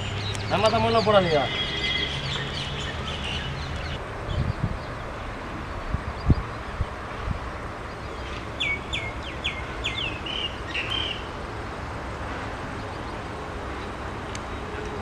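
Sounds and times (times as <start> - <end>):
bird chirping: 0.0 - 5.2, 7.9 - 11.3
low outdoor background: 0.0 - 15.0.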